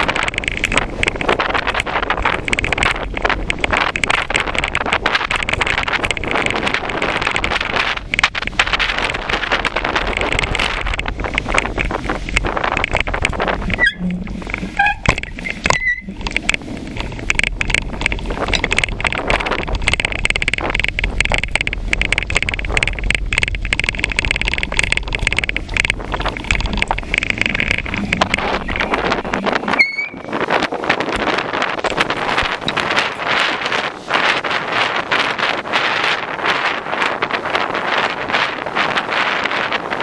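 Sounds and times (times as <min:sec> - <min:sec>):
bicycle rattling over paving: 0:00.0 - 0:40.0
wind on microphone: 0:00.0 - 0:40.0
short high squeaks: 0:13.7 - 0:16.2, 0:29.7 - 0:30.3.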